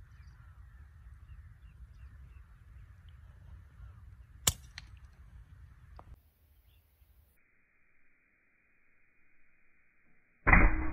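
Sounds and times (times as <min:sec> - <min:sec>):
faint bird chirps: 0:00.0 - 0:04.5, 0:05.8 - 0:10.3
air rifle shot: 0:10.5 - 0:10.9.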